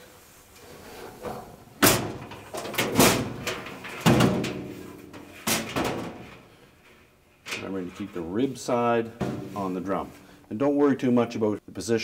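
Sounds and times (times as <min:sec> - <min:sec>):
hollow clunks of dryer drum: 0:01.2 - 0:06.4, 0:09.2 - 0:09.6.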